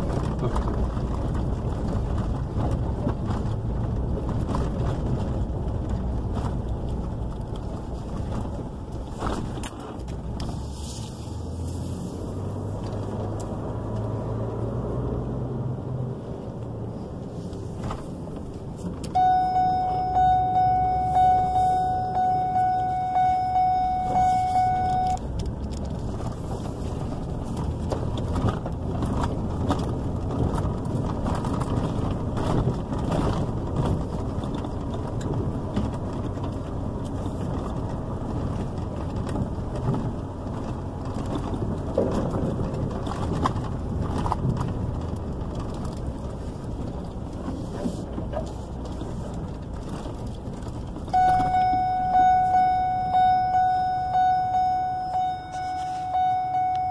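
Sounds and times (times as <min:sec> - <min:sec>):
light rattles and clicks: 0:00.0 - 0:11.1, 0:24.8 - 0:51.6
engine and road rumble: 0:00.0 - 0:56.9
warning chime dinging: 0:19.2 - 0:25.2, 0:51.2 - 0:56.9.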